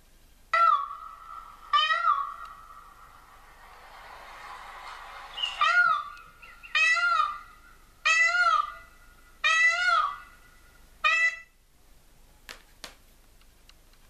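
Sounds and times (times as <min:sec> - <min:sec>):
peacock wailing calls: 0:00.5 - 0:11.6.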